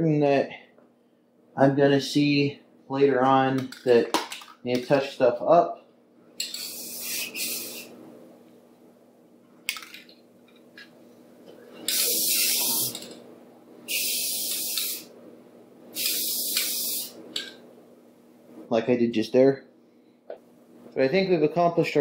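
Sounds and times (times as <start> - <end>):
spray paint can hissing: 6.5 - 7.9, 11.9 - 13.1, 13.9 - 15.1, 16.0 - 17.2.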